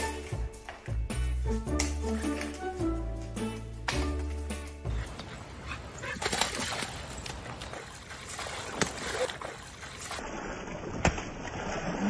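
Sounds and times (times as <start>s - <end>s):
dog splashing into water: 5.9s - 12.0s.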